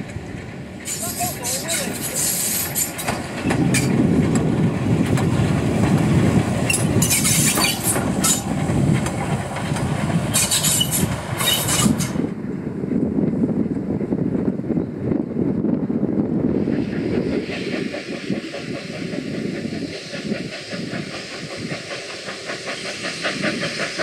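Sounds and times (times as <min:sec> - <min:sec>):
steam locomotive rumbling: 0:00.0 - 0:24.0
steam hissing: 0:00.8 - 0:04.0, 0:04.8 - 0:12.2, 0:16.5 - 0:24.0.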